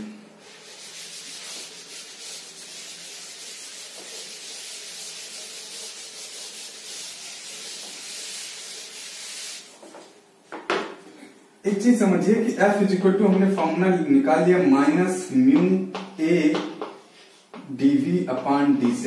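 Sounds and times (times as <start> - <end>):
duster wiping blackboard: 0.4 - 10.2.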